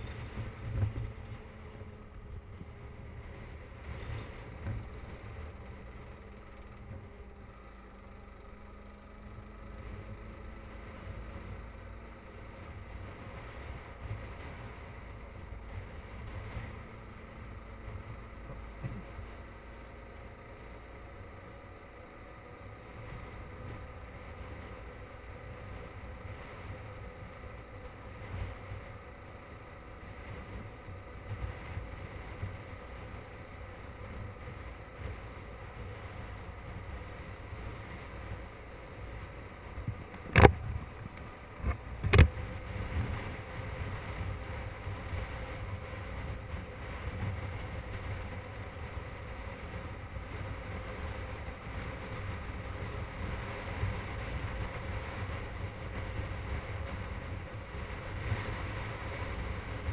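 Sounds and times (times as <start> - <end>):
motorcycle engine hum: 0.0 - 59.9
wind buffeting microphone: 23.0 - 59.9.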